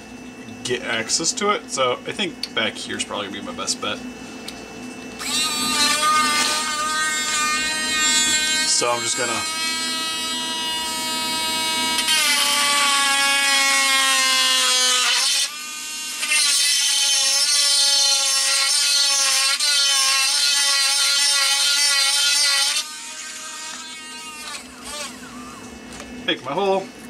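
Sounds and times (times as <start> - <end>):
rotary tool drilling plastic: 5.2 - 25.6.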